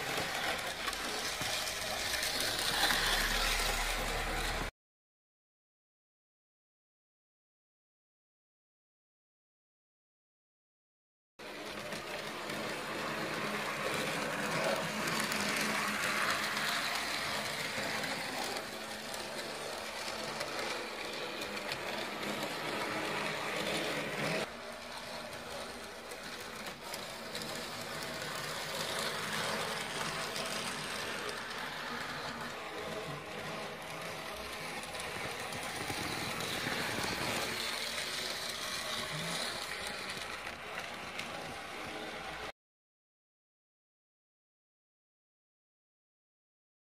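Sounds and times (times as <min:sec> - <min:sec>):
small electric motors whirring: 0:00.0 - 0:04.7, 0:11.4 - 0:42.5
model tram wheels rattling: 0:11.8 - 0:42.0.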